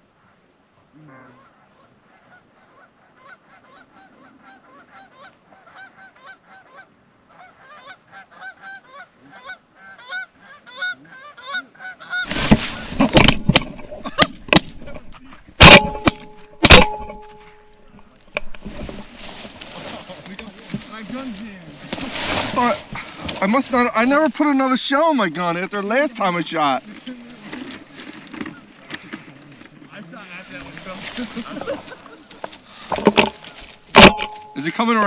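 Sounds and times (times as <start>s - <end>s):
geese honking: 1.0s - 14.2s
shotgun blasts: 15.6s - 17.3s.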